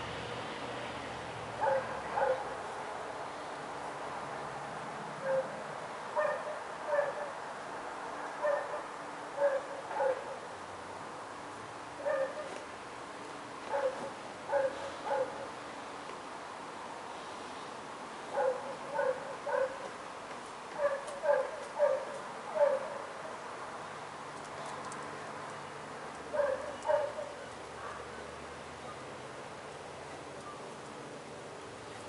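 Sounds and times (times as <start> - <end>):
dog barking: 1.6 - 2.6, 5.2 - 5.5, 6.2 - 7.4, 8.4 - 10.4, 12.0 - 12.5, 13.7 - 15.5, 18.3 - 19.9, 20.8 - 23.1, 26.3 - 28.1.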